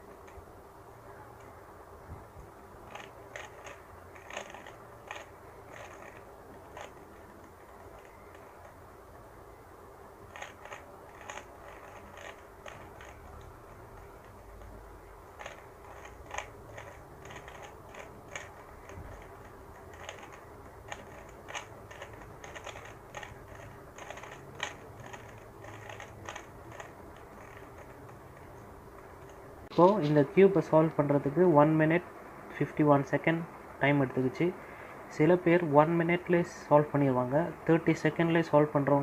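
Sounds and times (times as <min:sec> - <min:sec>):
puzzle cube clicking: 0:02.8 - 0:08.8, 0:10.3 - 0:29.4.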